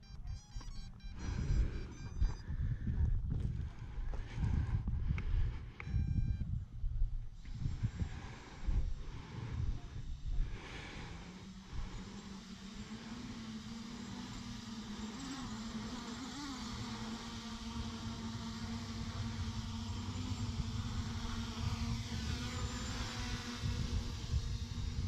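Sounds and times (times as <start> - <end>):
wind rumble on microphone: 0.0 - 12.1, 17.6 - 25.0
motorcycle engine running: 9.7 - 25.0.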